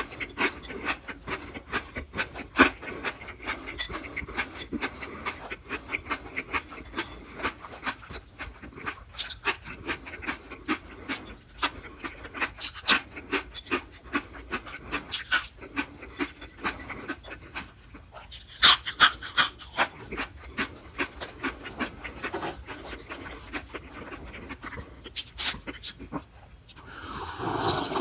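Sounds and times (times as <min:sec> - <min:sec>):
chewing mouth clicks: 0:00.0 - 0:28.0
breathing-like hiss: 0:26.8 - 0:28.0.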